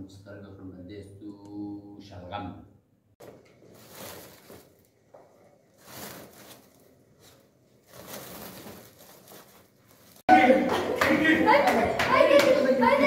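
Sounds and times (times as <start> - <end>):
plastic sack rustling: 3.6 - 10.3.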